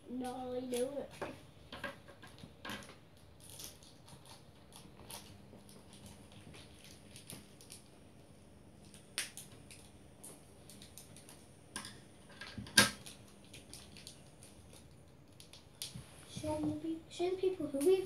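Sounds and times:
plastic packet clicking and crinkling: 2.1 - 8.0, 8.8 - 16.0.

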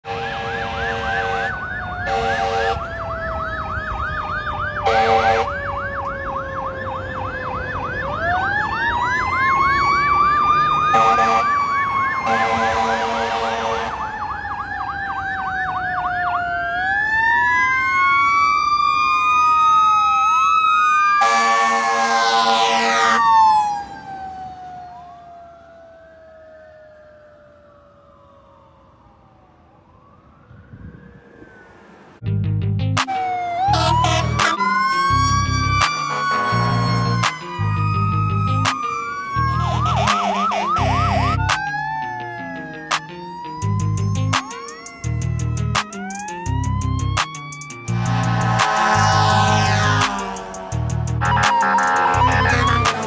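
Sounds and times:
air horn blasts: 0.0 - 2.9, 4.8 - 5.5, 10.9 - 11.5, 12.2 - 14.0, 21.2 - 23.2, 33.7 - 37.1, 39.6 - 41.3, 47.9 - 53.0
electronic siren yelping: 0.1 - 27.6, 33.0 - 53.0.

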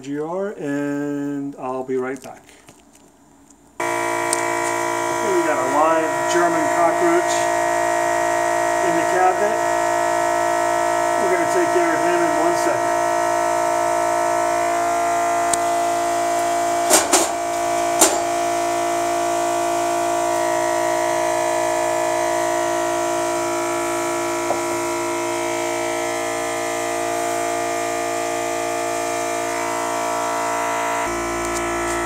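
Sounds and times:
motor sprayer buzzing hum: 3.8 - 32.0.

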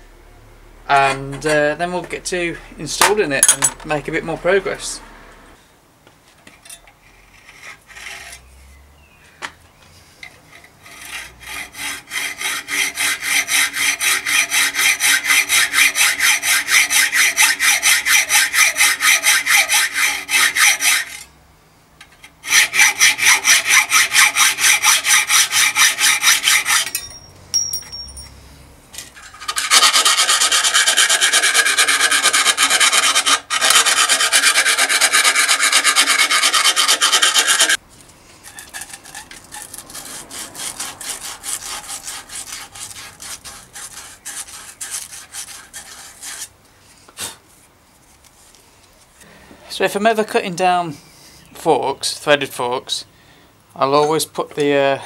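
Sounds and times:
hacksaw cutting steel tube: 6.7 - 8.5, 10.2 - 21.3, 22.2 - 27.2, 29.2 - 37.8, 38.4 - 46.5
round file rasping metal: 7.2 - 8.5, 10.4 - 21.3, 22.4 - 27.2, 29.2 - 37.8, 38.4 - 46.5.

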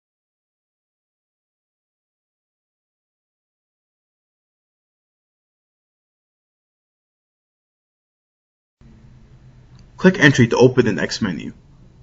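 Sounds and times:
faint steady hiss: 8.8 - 12.0
low hum: 8.8 - 12.0.

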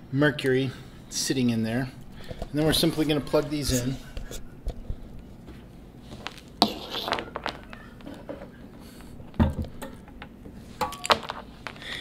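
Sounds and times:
power cords handling knocks: 9.2 - 11.8.

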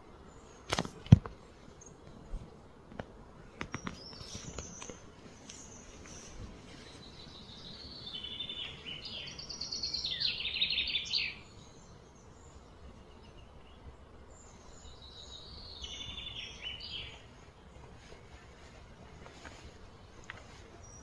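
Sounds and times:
songbird trilling: 7.0 - 11.5, 14.9 - 17.2.

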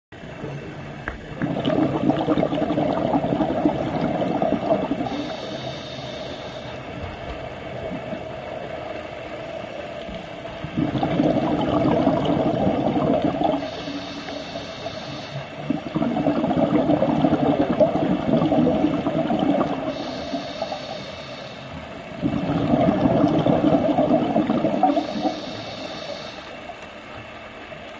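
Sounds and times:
exhaled bubbles underwater: 0.2 - 27.9
regulator inhalation hiss: 4.8 - 7.0, 13.4 - 15.9, 19.6 - 22.2, 24.7 - 26.8.

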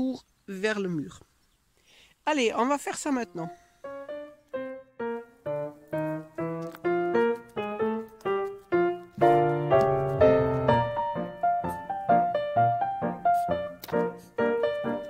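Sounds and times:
piano chords: 3.2 - 15.0
piano melody: 3.2 - 15.0.

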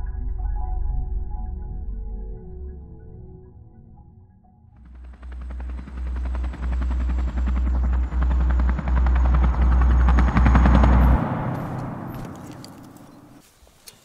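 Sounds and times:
deep pulsing drone: 0.0 - 13.4
helicopter rotor chopping: 4.8 - 13.4.

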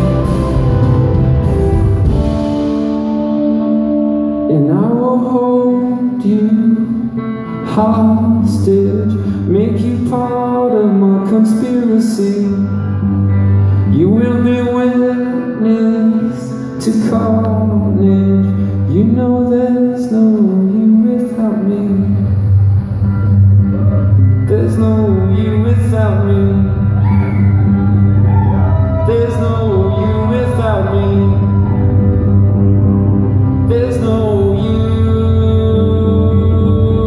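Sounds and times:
live rock band playing: 0.0 - 19.1, 21.6 - 37.0.

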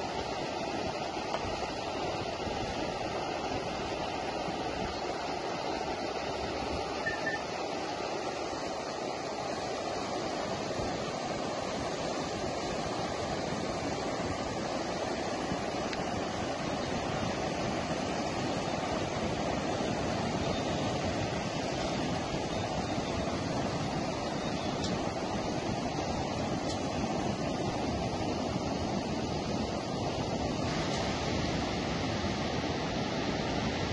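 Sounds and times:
floodwater rushing: 0.0 - 33.9.

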